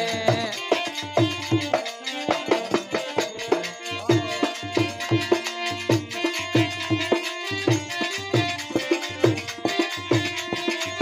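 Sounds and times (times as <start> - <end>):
dholak drum rhythm: 0.0 - 11.0
harmonium melody: 0.0 - 11.0.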